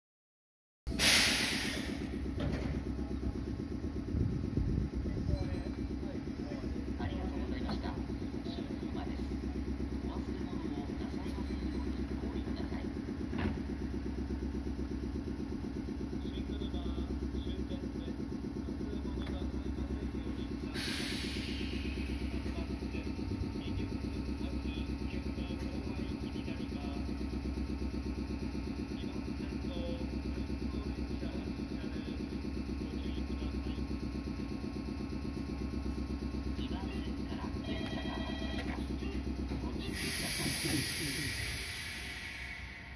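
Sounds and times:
short hiss: 1.0 - 2.1
electric train equipment humming: 1.4 - 42.9.

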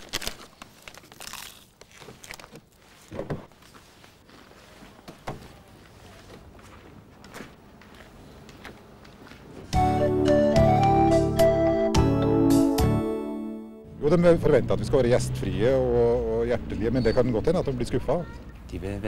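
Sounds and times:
faint crunches and clicks: 0.0 - 3.1.

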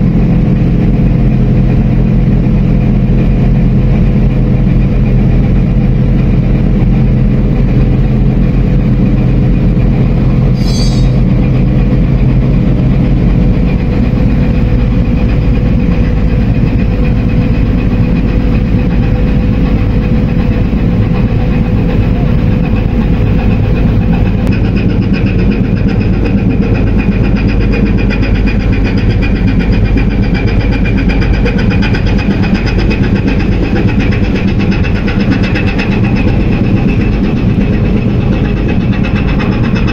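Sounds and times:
ship diesel engines running: 0.0 - 39.9
high-pitched whine: 10.0 - 11.5.

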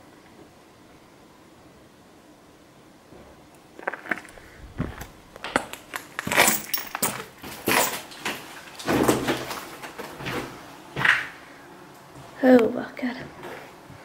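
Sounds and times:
footsteps crunching over rubble: 3.8 - 10.5.

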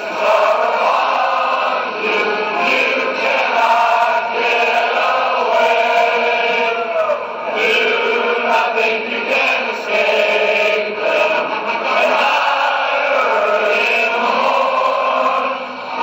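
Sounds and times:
choir chanting and singing: 0.0 - 16.0.

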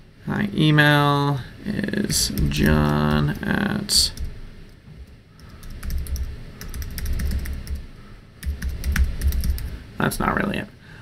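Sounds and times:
keyboard typing: 2.1 - 3.4, 4.1 - 4.4, 5.4 - 9.7.

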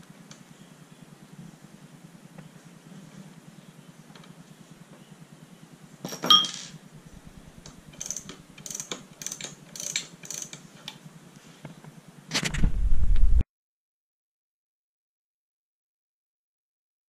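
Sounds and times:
sharp metallic clank: 6.1 - 6.8
metal parts clicking and rattling: 7.9 - 10.6.

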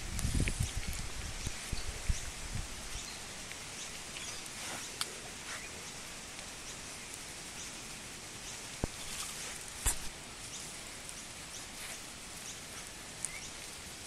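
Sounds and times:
steady background hiss: 0.0 - 14.0
hand rustling fur: 4.4 - 5.7, 8.8 - 10.2.

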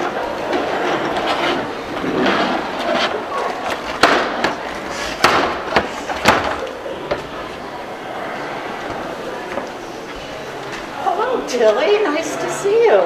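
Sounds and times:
sharp knocks and clacks: 5.2 - 7.2.

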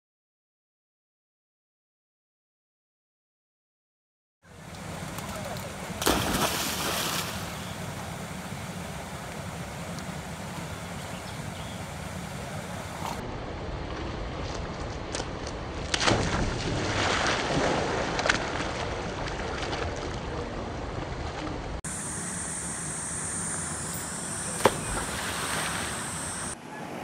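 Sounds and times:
outdoor water noise: 4.4 - 27.0
dog splashing into water: 6.0 - 7.7, 16.0 - 20.1.

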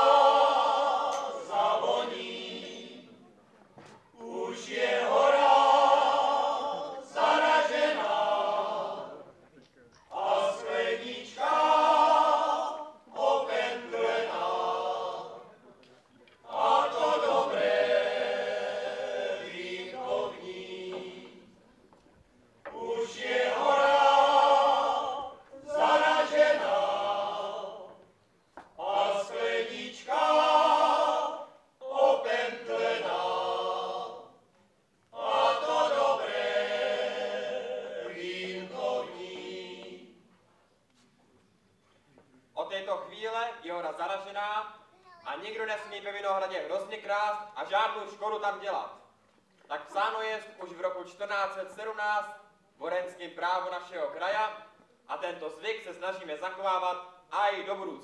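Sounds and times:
male choir singing: 0.0 - 3.2, 4.2 - 9.4, 10.1 - 15.6, 16.4 - 21.6, 22.7 - 28.0, 28.8 - 34.4, 35.1 - 40.3.

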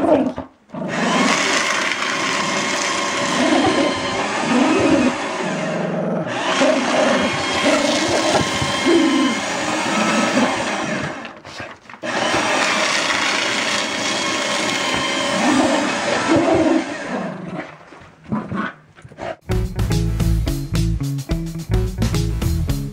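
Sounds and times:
dog growling and barking: 0.0 - 1.7, 2.5 - 12.6, 15.1 - 19.4
paper shredder motor: 0.9 - 11.4, 12.0 - 17.4.

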